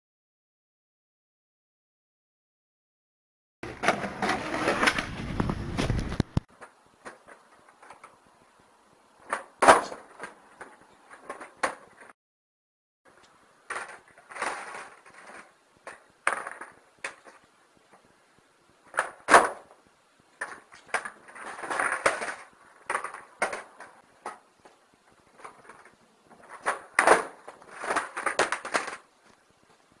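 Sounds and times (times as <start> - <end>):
skateboard clacking: 3.6 - 8.2, 9.2 - 12.1, 13.6 - 18.0, 18.8 - 19.8, 20.4 - 29.1
skateboard wheels rolling on concrete: 3.6 - 12.2, 13.1 - 30.0.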